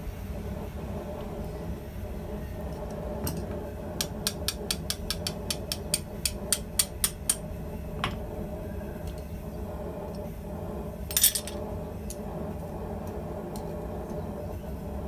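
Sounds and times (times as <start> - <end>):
hammer striking hot steel: 3.3 - 8.2.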